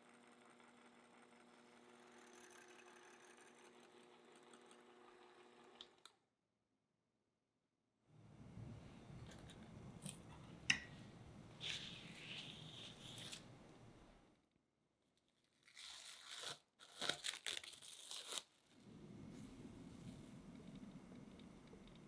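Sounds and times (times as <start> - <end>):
cling film crinkling: 15.4 - 18.8.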